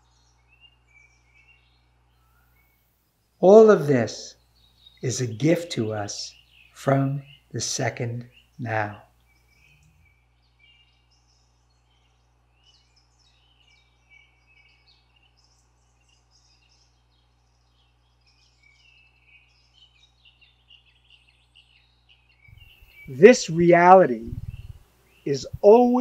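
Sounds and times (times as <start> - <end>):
birds chirping faintly: 0.0 - 26.0
faint low hum: 22.5 - 26.0.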